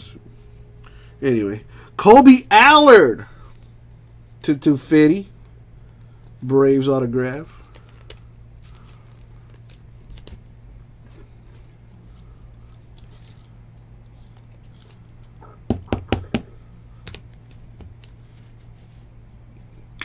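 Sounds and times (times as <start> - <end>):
steady low hum: 0.0 - 20.0
soft plastic rustling: 7.2 - 15.4.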